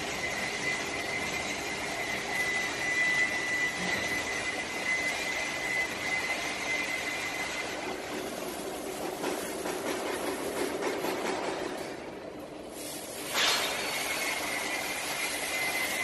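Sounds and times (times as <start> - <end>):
workshop machine noise: 0.0 - 16.0.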